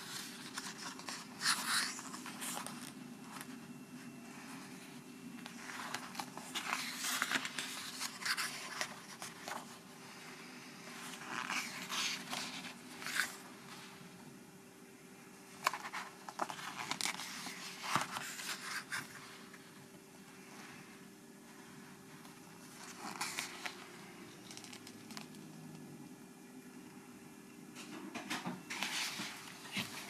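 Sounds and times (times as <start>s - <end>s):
fingers sliding over pages: 0.0s - 14.0s, 15.5s - 19.7s, 21.9s - 25.3s
paper pages rustling: 0.0s - 14.0s, 15.5s - 20.9s, 21.7s - 25.5s, 28.7s - 30.0s
faint low hum: 0.0s - 30.0s.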